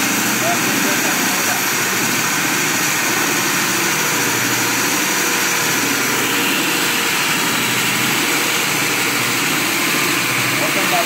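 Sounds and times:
core drill grinding concrete: 0.0s - 11.0s.

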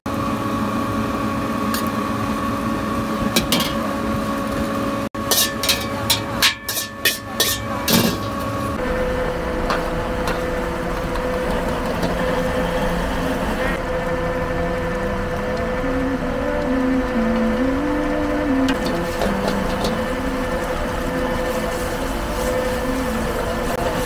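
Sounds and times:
gas burner roar: 0.1s - 24.0s
spatula scraping in wok: 5.2s - 8.8s
metal knocks and clangs in wok: 5.3s - 8.4s.

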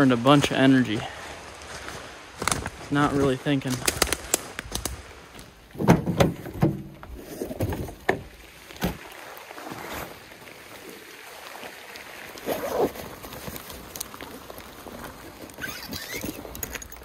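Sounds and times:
waders rustling and swishing: 8.6s - 17.0s.

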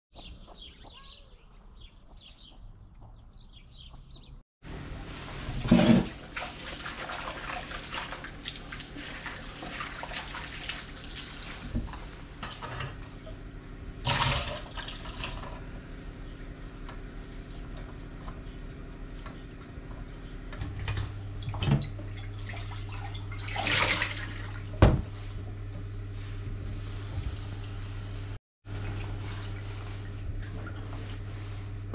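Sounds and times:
water running from tap: 5.7s - 11.8s, 14.0s - 15.7s.

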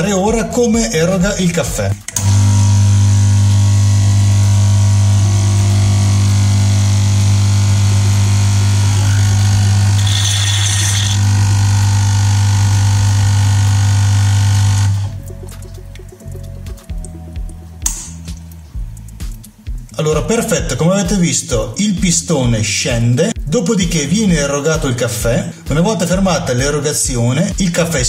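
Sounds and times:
espresso machine pump buzzing: 2.1s - 15.1s.

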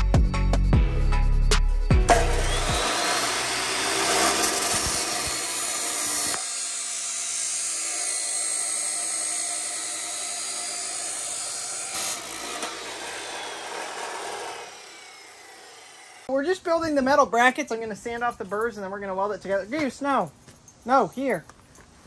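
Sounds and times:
chop saw cutting steel: 2.0s - 16.3s.

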